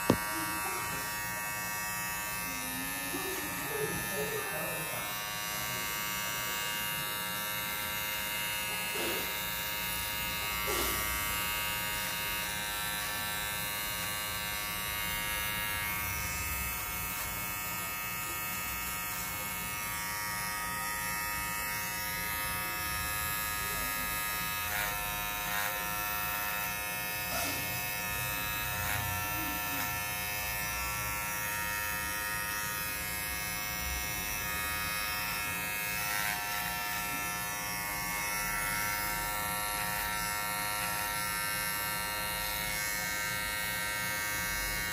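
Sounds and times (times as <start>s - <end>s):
hair trimmer buzzing: 0.0s - 44.9s.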